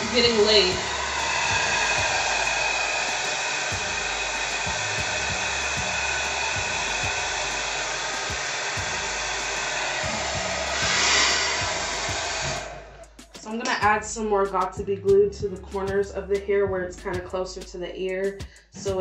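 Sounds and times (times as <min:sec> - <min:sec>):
hair dryer running: 0:00.0 - 0:13.1.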